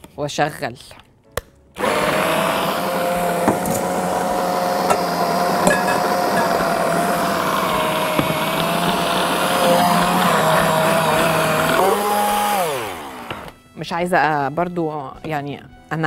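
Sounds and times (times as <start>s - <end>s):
food processor motor running: 1.8s - 13.6s.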